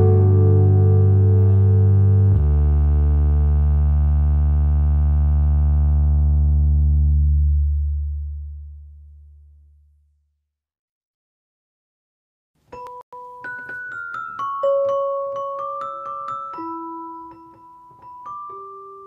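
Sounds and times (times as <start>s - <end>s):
background music chords: 0.0s - 8.5s
deep bass note: 0.0s - 10.1s.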